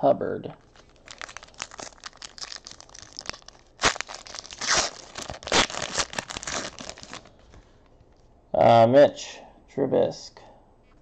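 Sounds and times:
foil wrapper tearing and crinkling: 0.7s - 7.4s.

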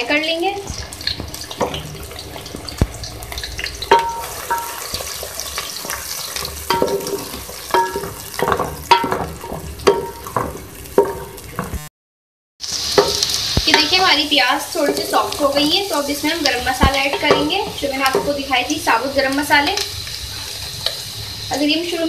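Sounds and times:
onions sizzling in hot oil: 0.0s - 11.9s, 12.6s - 22.0s
wooden spoon knocking metal pot: 3.9s - 5.1s, 6.6s - 11.8s, 13.0s - 13.9s, 16.7s - 18.5s.

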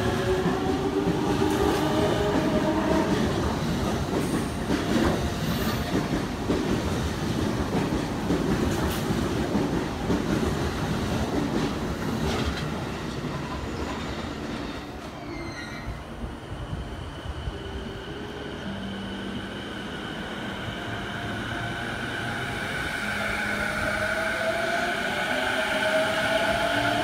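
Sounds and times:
train wheels rumbling on rail: 0.0s - 18.2s.

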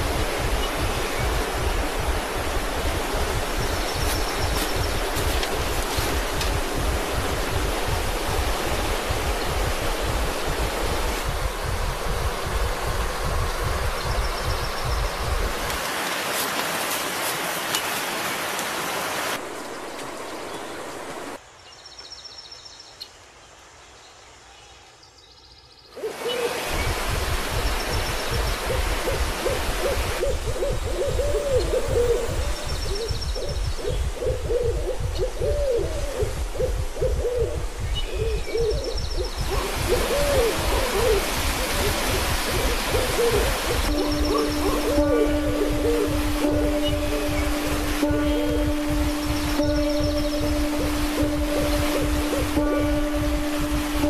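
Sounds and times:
rushing river water: 0.0s - 21.4s, 26.0s - 34.2s, 37.6s - 54.0s
breathy hooting melody: 39.5s - 54.0s.

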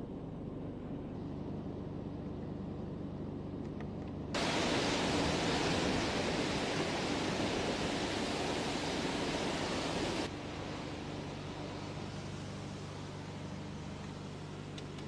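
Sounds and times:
low hum inside car: 0.0s - 8.5s
strong wind rushing: 4.4s - 10.3s.

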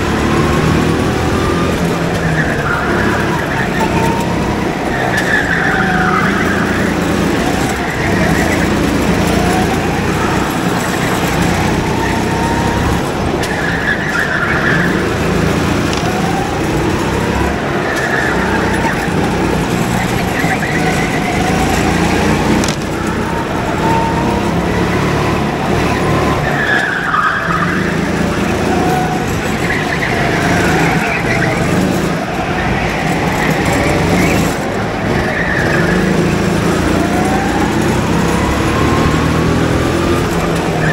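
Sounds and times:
go-kart engine running hard: 0.0s - 40.9s
tyres squealing: 0.0s - 40.9s.

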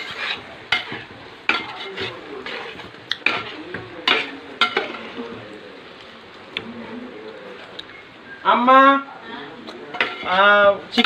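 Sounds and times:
spoon scraping metal pot: 0.0s - 5.2s, 9.9s - 10.4s
simmering curry hissing: 0.0s - 11.0s.

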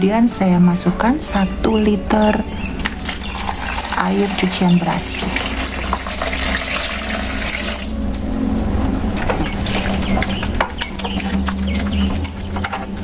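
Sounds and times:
water pouring into tub: 2.8s - 8.0s, 9.4s - 10.5s.

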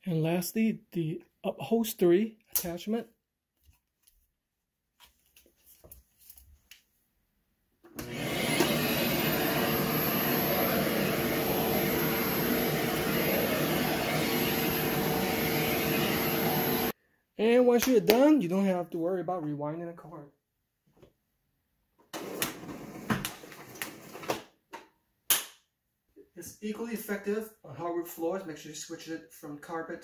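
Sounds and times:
vacuum cleaner motor whine: 7.9s - 17.0s.

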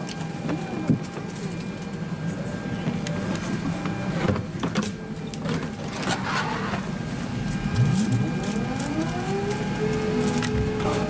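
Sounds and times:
rising whine: 6.7s - 11.0s.

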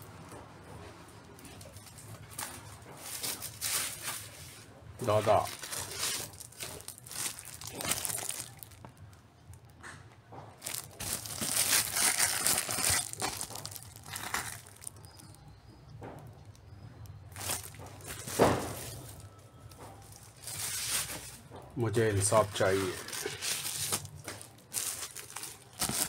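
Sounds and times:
plastic sleeves crinkling: 1.2s - 9.8s, 10.5s - 15.6s, 16.3s - 26.0s.

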